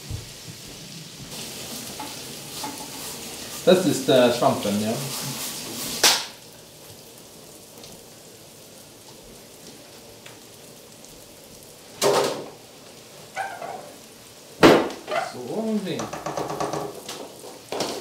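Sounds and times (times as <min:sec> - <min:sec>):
baking tray knock: 0:14.6 - 0:15.1, 0:16.0 - 0:18.0.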